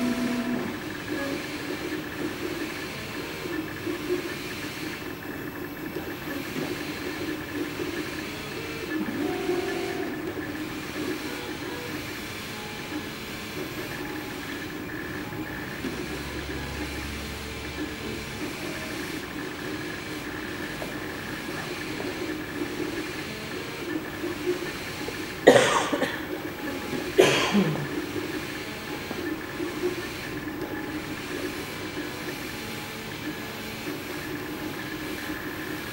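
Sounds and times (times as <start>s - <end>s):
stepper motors whirring: 0.0s - 35.9s
person coughing: 25.5s - 26.3s, 27.2s - 28.0s.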